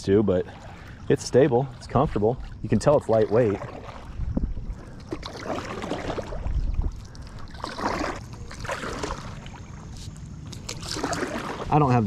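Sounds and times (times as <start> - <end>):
paddle splashing in water: 0.0 - 12.0.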